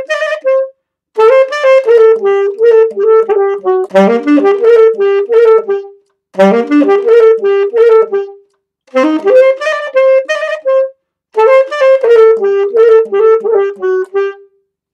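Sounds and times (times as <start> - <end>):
solo saxophone melody: 0.0 - 14.8.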